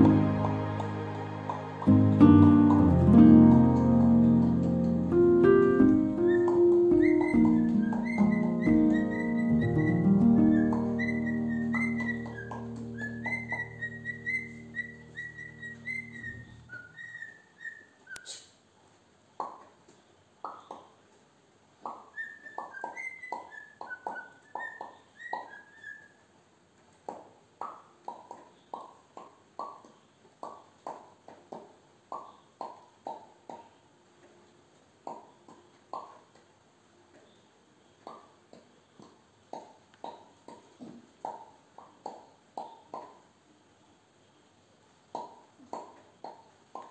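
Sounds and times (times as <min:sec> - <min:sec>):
background music: 0:00.0 - 0:16.4
cockatiel whistling: 0:06.2 - 0:18.3, 0:22.1 - 0:26.1.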